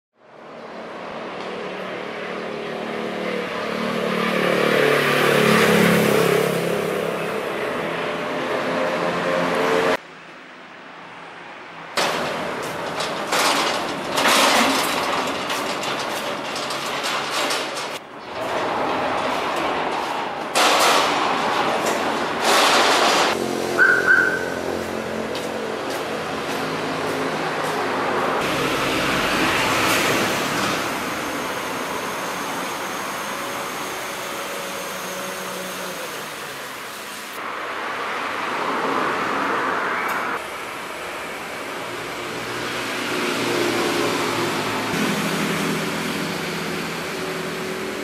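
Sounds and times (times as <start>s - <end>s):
road traffic noise: 0.2s - 48.0s
vehicle passing close by: 2.8s - 10.0s
steel gate rattling and scraping: 12.0s - 24.6s, 28.4s - 37.0s
high squeal: 29.8s - 37.1s.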